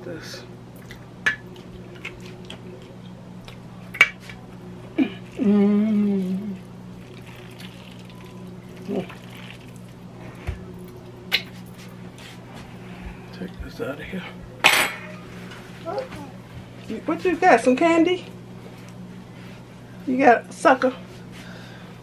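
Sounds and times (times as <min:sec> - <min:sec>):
oven hum: 0:00.0 - 0:22.0.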